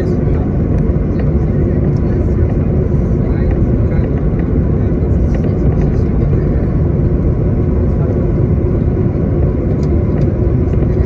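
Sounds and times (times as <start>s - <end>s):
jet engines rumbling in cabin: 0.0s - 11.0s.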